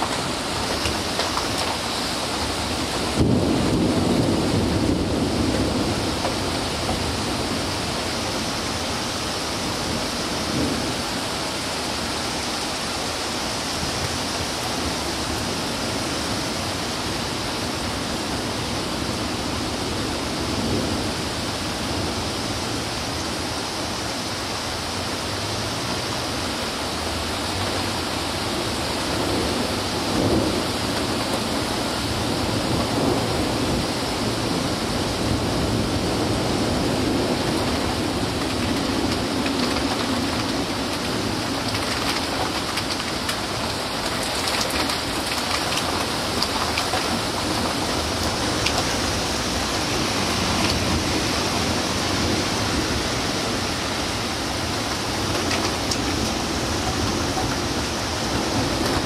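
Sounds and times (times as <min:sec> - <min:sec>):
thunder rumbling: 0:00.0 - 0:12.1, 0:27.6 - 0:59.0
heavy rain: 0:00.0 - 0:59.0.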